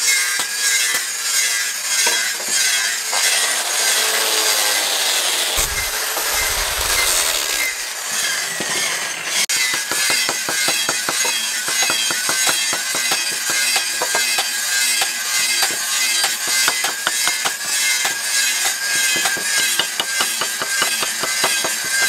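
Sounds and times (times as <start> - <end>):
angle grinder sanding wood: 1.8 - 9.2.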